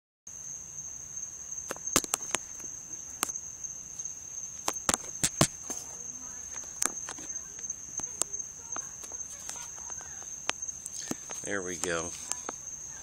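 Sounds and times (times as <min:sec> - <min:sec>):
crickets trilling: 0:00.3 - 0:13.0
sharp clicks and knocks: 0:04.6 - 0:05.8.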